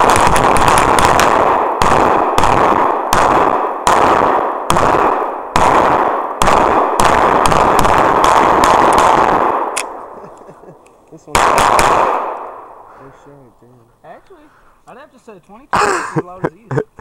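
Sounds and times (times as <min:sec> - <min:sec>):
handgun shots: 0:00.0 - 0:10.0.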